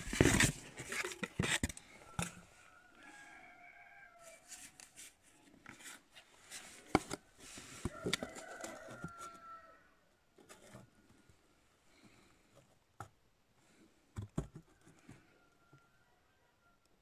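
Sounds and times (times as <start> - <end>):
rooster crowing: 1.9 - 4.8, 7.8 - 10.0, 14.9 - 16.9
cardboard tapping on metal: 14.2 - 14.9.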